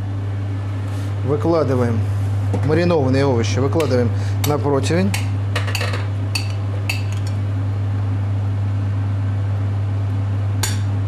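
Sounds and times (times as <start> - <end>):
appliance fan humming: 0.0 - 11.0.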